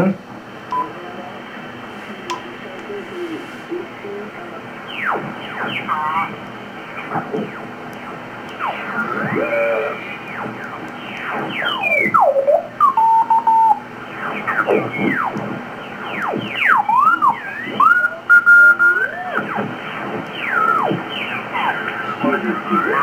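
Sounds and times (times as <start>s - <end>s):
radio band hiss: 0.0s - 23.0s
radio whistles and squealing tones: 4.8s - 23.0s.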